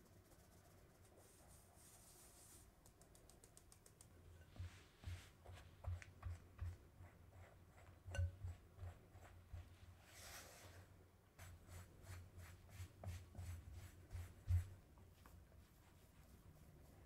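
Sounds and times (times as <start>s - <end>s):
flour sifting through sieve: 0.0s - 2.8s, 4.4s - 17.0s
spatula thumping against glass bowl: 8.1s - 8.5s.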